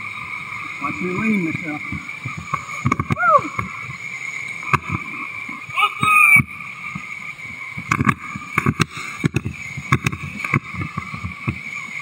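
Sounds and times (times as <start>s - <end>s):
waves slapping raft: 0.3s - 12.0s.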